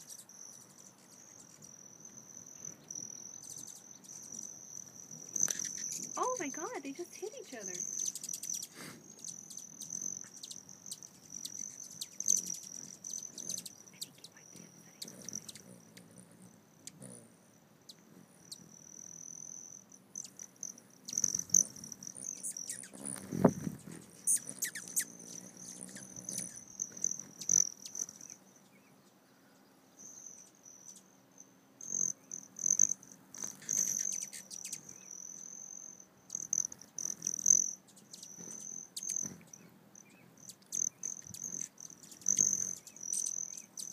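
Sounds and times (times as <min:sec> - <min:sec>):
hummingbird wing trill: 0:00.0 - 0:29.2, 0:31.8 - 0:43.9
sharp bird chips: 0:05.2 - 0:16.1, 0:21.1 - 0:23.2, 0:24.2 - 0:28.4.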